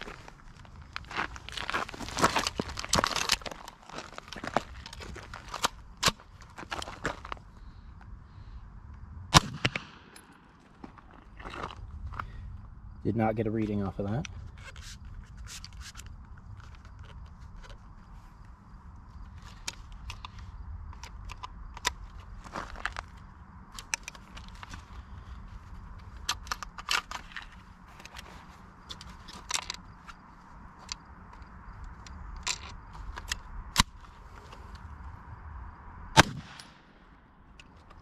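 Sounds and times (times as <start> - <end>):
pistol shot: 9.3 - 10.2, 36.2 - 36.9.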